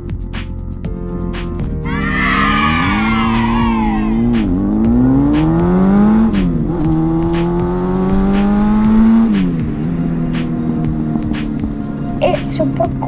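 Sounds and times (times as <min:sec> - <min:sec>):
background music with beat: 0:00.0 - 0:13.0
motorcycle engine accelerating: 0:01.5 - 0:13.0
high falling sound: 0:01.8 - 0:06.6.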